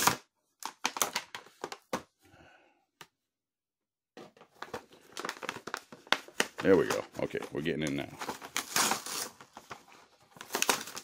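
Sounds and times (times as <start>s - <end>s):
plastic packaging crackling: 4.5s - 11.0s.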